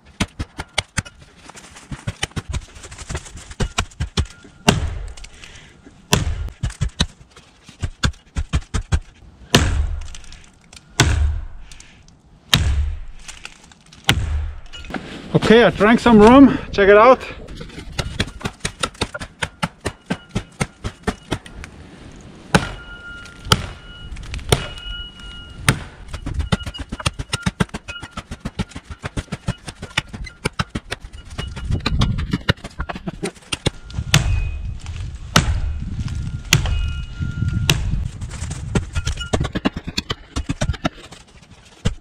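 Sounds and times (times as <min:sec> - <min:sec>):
axe chopping tree trunk: 0:00.0 - 0:01.1, 0:01.9 - 0:05.3, 0:06.1 - 0:10.4, 0:11.0 - 0:11.6, 0:12.5 - 0:14.7, 0:22.5 - 0:22.8, 0:23.4 - 0:23.8, 0:24.4 - 0:24.8, 0:25.6 - 0:32.8, 0:33.4 - 0:34.5, 0:35.3 - 0:35.7, 0:36.5 - 0:37.0, 0:37.7 - 0:38.0.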